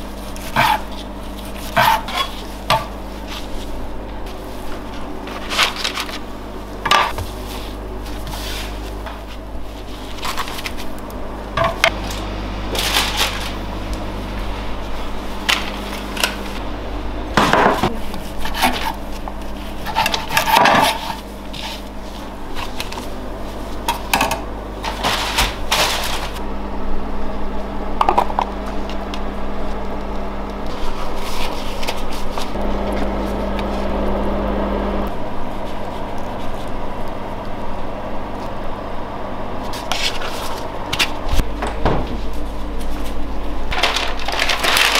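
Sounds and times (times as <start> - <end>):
steady low hum: 0.0 - 44.9
utensils and trays clattering: 1.6 - 3.0, 5.2 - 6.2, 11.6 - 13.6, 19.8 - 21.8, 23.8 - 26.4, 43.7 - 44.9
knife on wooden cutting board: 1.7 - 2.4.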